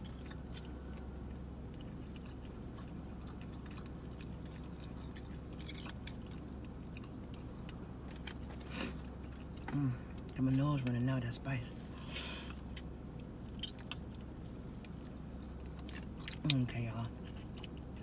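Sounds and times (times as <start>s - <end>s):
person chewing: 0.0s - 11.0s, 11.8s - 18.0s
steady low hum: 0.0s - 18.0s
short sniff: 8.6s - 9.0s.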